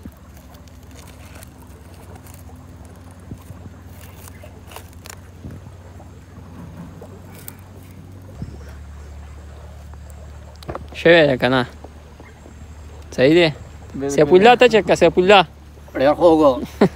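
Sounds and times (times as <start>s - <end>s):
corn husk rustling and crackling: 0.0s - 12.0s
steady low rumble: 0.0s - 16.9s.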